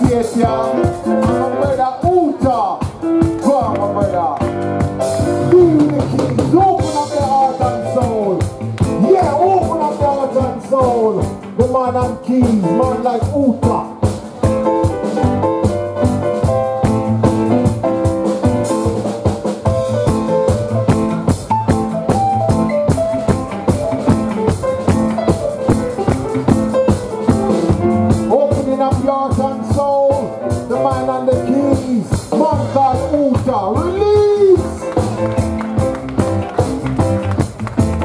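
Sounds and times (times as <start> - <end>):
bass: 0.0 - 38.0
drum kit with busy hi-hat: 0.0 - 38.0
keyboard melodic lines: 0.0 - 38.0
electric guitar: 14.0 - 28.3.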